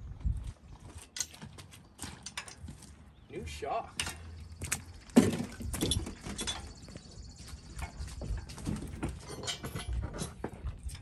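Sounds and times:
chain rattling: 5.5 - 6.9, 7.8 - 11.0
metal clanking: 8.6 - 11.0.

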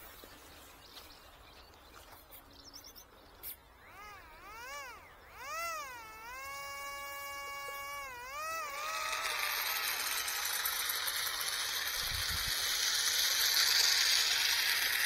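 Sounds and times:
electric motors whining: 3.4 - 15.0.

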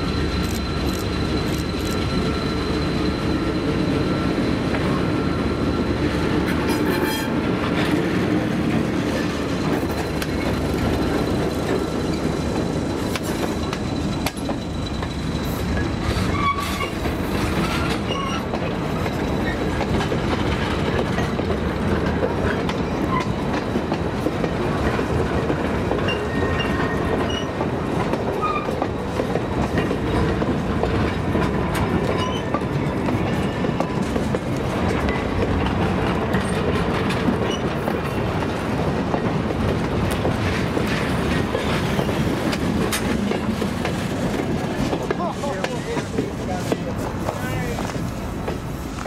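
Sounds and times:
steel wheels rumbling on rail: 0.0 - 49.0.

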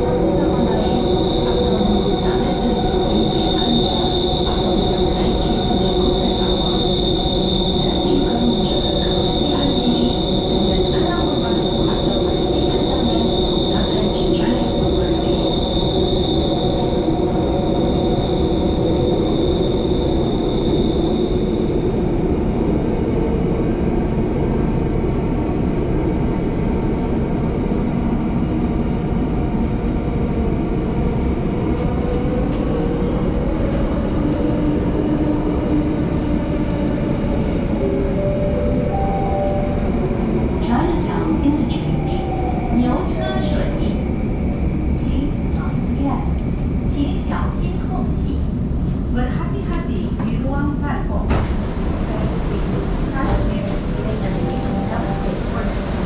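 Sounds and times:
train wheels rumbling on track: 40.0 - 56.0
high steady squeal: 51.3 - 56.0.

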